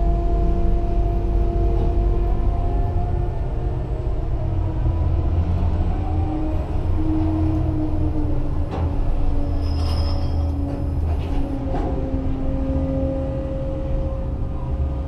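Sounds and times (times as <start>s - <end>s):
crane machinery humming with whine: 0.0s - 15.0s
high squeal: 9.4s - 10.6s.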